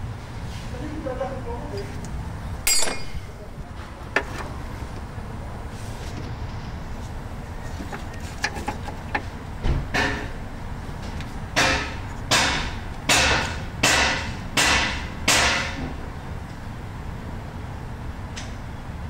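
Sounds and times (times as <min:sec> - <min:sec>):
sharp metallic strokes ringing: 0:02.6 - 0:03.4.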